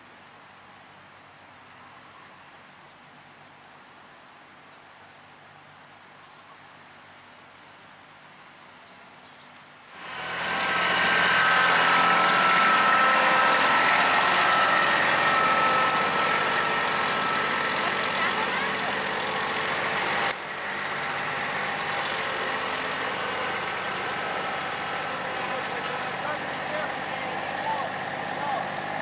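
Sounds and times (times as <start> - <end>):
high-pitched whine: 10.0 - 20.4
tractor engine running: 10.0 - 29.0.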